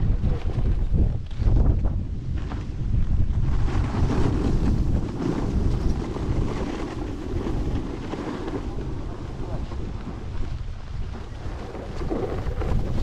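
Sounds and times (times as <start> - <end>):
snowboard scraping over snow: 0.0 - 13.0
wind noise on microphone: 0.0 - 13.0.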